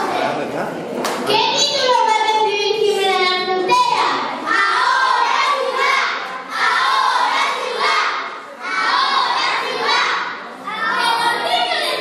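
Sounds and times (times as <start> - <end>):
child-like voices singing: 4.5 - 12.0.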